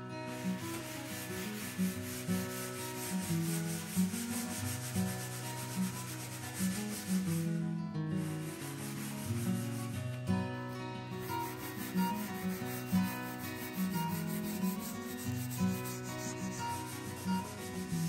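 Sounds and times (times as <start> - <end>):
wire wool rasping on wood: 0.3 - 7.5, 8.4 - 10.1, 11.1 - 18.0
background music: 8.2 - 18.0.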